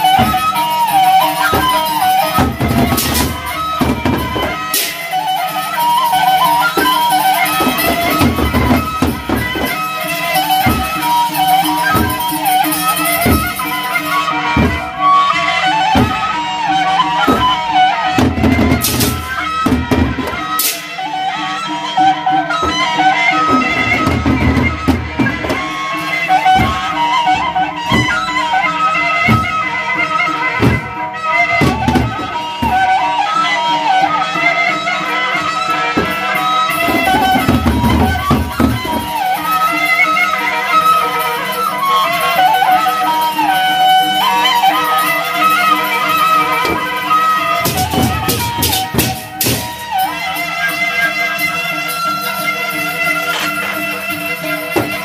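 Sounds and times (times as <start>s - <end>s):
barrel drums beaten: 0.0s - 5.9s, 6.7s - 15.0s, 15.9s - 16.3s, 17.3s - 20.8s, 22.6s - 28.5s, 29.2s - 29.7s, 31.6s - 33.0s, 36.0s - 39.6s, 46.1s - 50.0s
reedy held melody: 0.0s - 55.0s.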